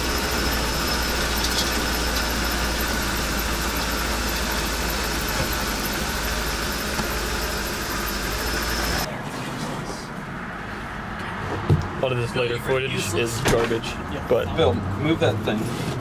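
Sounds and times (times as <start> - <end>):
engine idling: 0.0 - 9.1.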